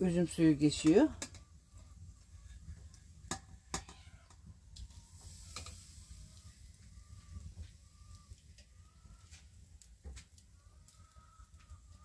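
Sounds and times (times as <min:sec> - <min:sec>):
clicks and knocks on steel pot: 0:00.8 - 0:01.4, 0:03.3 - 0:04.0
faint hens clucking: 0:06.3 - 0:12.0.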